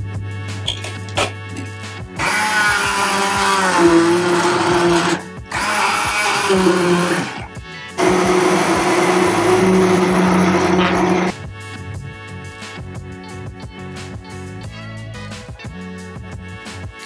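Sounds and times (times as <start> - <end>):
immersion blender running: 2.2 - 11.4.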